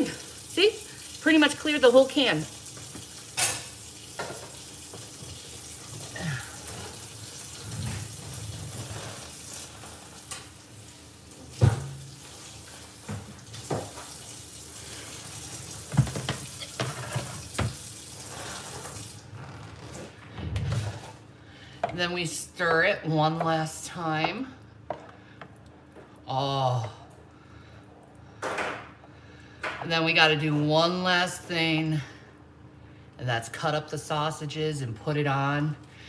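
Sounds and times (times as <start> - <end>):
tap water running into sink: 0.0 - 19.2
dishes clattering: 15.9 - 17.8.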